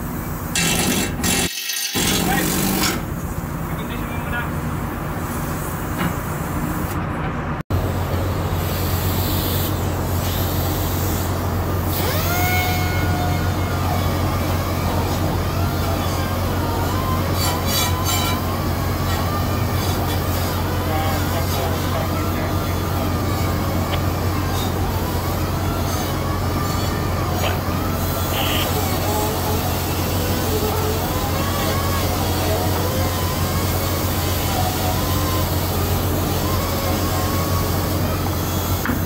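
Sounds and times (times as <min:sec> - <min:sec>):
ship machinery drone: 0:00.0 - 0:39.0.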